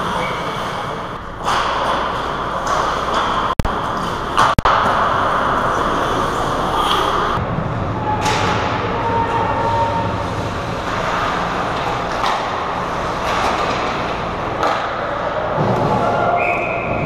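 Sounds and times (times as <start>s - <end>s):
skates scraping on ice: 0.0s - 7.4s.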